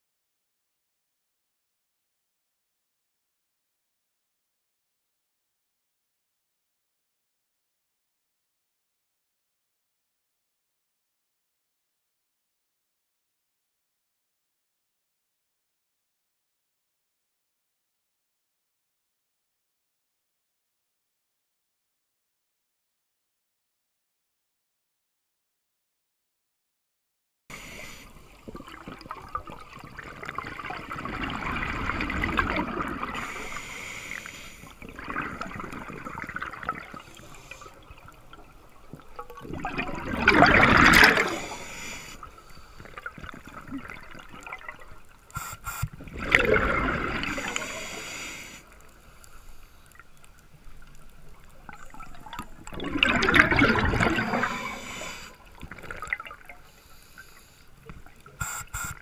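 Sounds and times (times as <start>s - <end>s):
diver's regulator bubbles gurgling: 27.6s - 59.0s.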